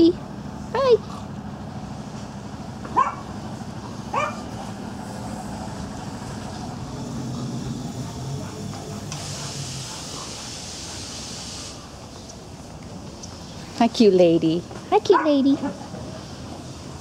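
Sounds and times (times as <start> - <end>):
steady low hum: 0.0 - 17.0
small dog yapping: 2.9 - 3.3, 4.1 - 4.4
hiss: 4.6 - 12.6.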